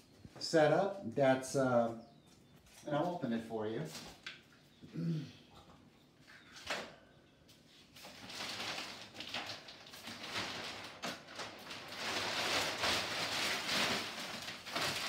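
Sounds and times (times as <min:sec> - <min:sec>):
plastic sheeting rustling: 0:07.5 - 0:15.0.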